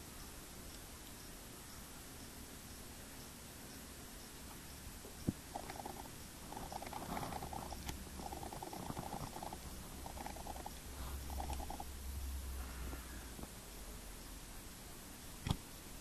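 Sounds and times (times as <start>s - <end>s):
squirrel gnawing clicks: 5.5s - 11.8s.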